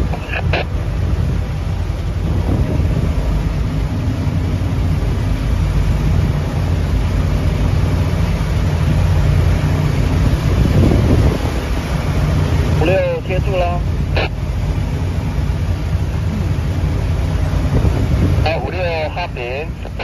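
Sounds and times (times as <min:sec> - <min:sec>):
wind rushing: 0:00.0 - 0:06.8, 0:08.9 - 0:12.8
boat engine rumbling: 0:00.0 - 0:20.0
choppy water: 0:00.0 - 0:20.0.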